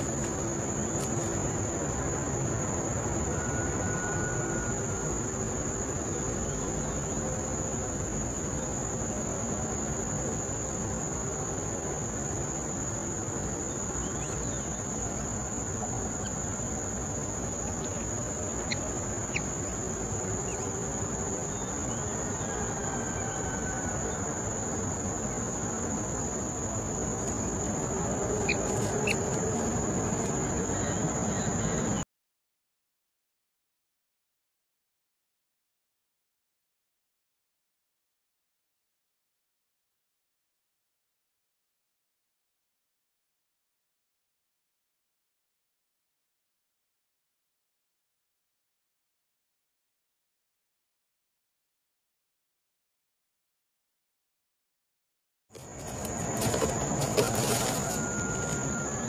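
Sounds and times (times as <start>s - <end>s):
insects droning: 0.0s - 32.0s, 55.6s - 59.0s
low outdoor hiss: 0.0s - 32.0s.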